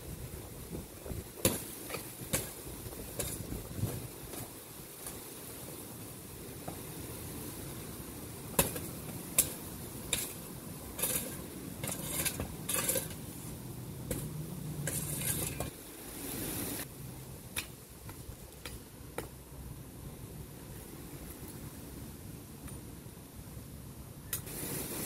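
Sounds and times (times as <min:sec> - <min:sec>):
shovel scraping through soil: 0:09.4 - 0:16.8.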